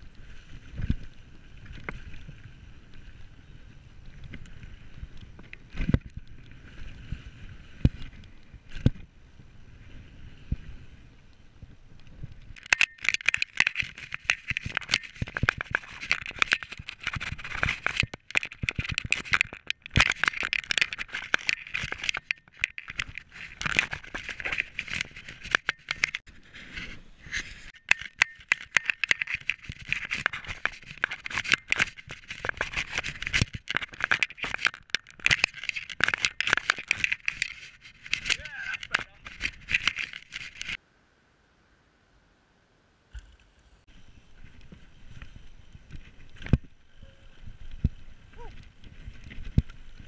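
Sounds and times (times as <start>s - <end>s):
mountain bike rattling: 12.5s - 26.4s, 27.6s - 40.8s.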